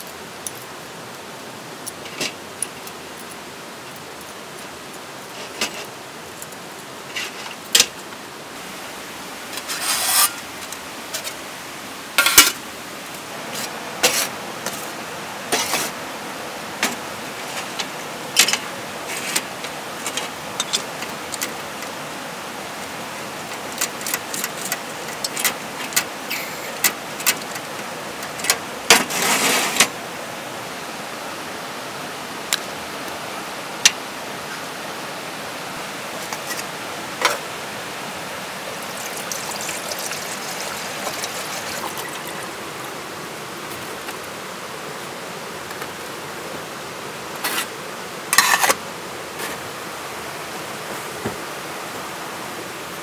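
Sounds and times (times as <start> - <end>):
creek rapids rushing: 0.0 - 53.0
scraping rubs: 9.5 - 10.4, 29.0 - 29.9
clicks and knocks of pots: 12.2 - 12.6, 38.8 - 42.5, 48.3 - 48.8.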